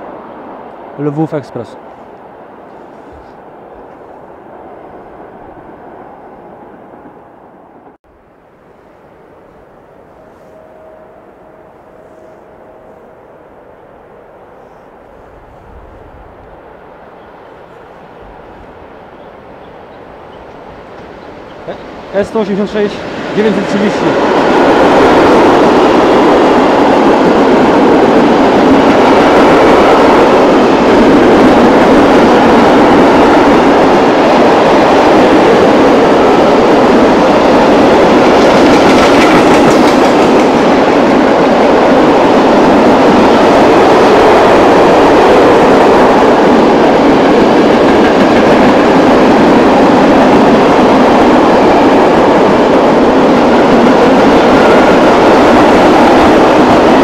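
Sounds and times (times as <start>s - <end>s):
freight train rolling past: 0.0s - 57.0s
steel wheels clattering on rails: 36.9s - 41.2s.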